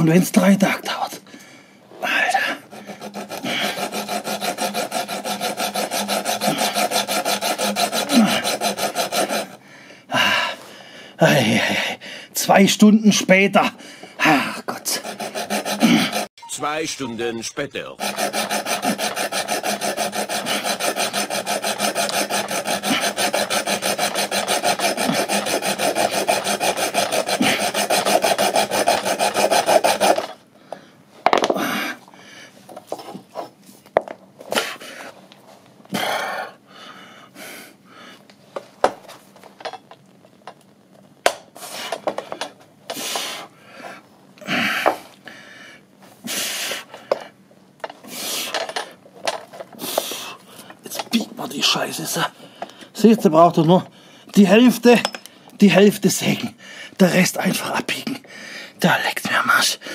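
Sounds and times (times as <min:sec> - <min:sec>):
hacksaw cutting through pipe: 0:02.3 - 0:09.6, 0:14.2 - 0:16.3, 0:18.0 - 0:30.4, 0:50.9 - 0:51.2
scrapes and knocks of pipe pieces: 0:18.0 - 0:30.4, 0:32.6 - 0:34.8, 0:38.4 - 0:43.3, 0:46.9 - 0:51.3.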